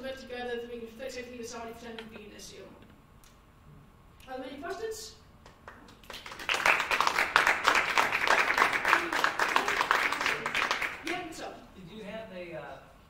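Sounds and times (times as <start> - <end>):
audience applauding: 5.5 - 11.2.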